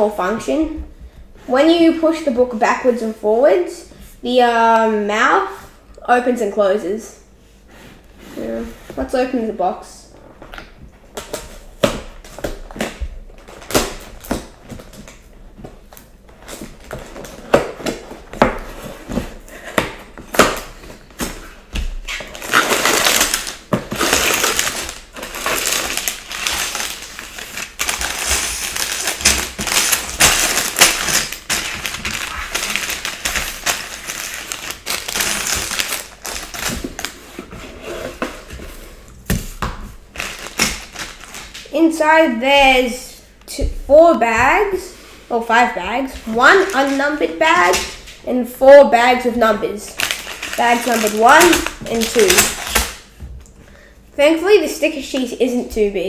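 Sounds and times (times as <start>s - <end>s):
plastic bags crinkling and rattling: 11.1s - 37.2s, 39.4s - 41.7s, 49.9s - 53.2s.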